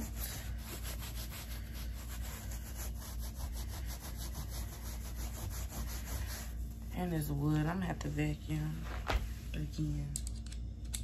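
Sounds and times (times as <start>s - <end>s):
rubbing on carpet: 0.0s - 7.8s
low steady hum: 0.0s - 11.0s.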